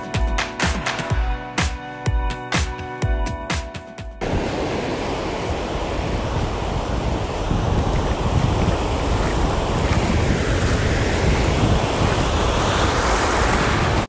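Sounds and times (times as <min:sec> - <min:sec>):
ocean surf washing: 0:04.2 - 0:14.0
wind buffeting microphone: 0:04.2 - 0:14.0.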